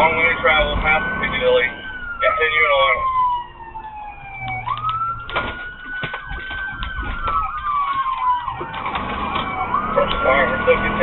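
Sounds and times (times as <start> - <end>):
police siren wailing and yelping: 0.0 - 11.0.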